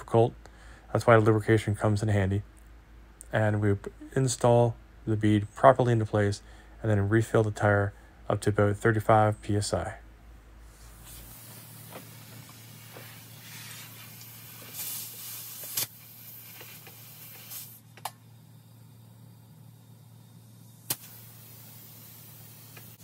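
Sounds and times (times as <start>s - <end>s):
steady low hum: 0.0s - 23.0s
air hissing from hose: 10.7s - 23.0s
sharp snaps: 20.8s - 21.8s.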